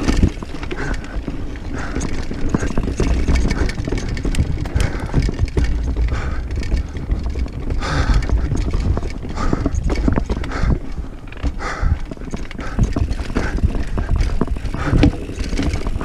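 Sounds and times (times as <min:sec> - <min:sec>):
bike rattling: 0:00.0 - 0:16.0.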